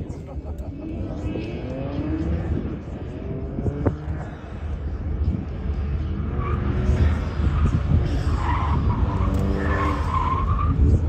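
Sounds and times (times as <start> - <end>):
car engine revving: 0.4 - 11.0.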